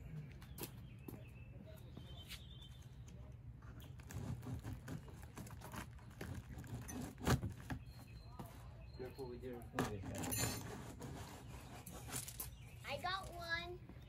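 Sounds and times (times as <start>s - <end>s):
packing straps clicking and rustling: 3.8s - 7.9s.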